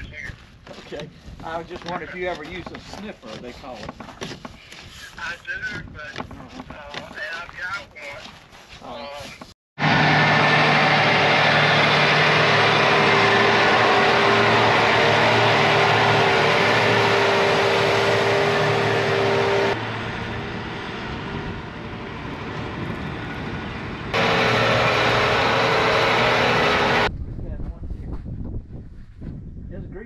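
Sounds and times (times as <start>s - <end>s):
machine running loudly: 9.8s - 27.1s.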